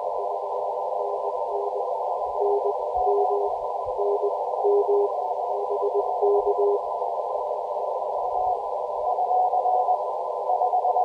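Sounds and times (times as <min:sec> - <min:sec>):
radio band hiss: 0:00.0 - 0:11.0
faint morse code tones: 0:01.0 - 0:06.8, 0:08.3 - 0:11.0.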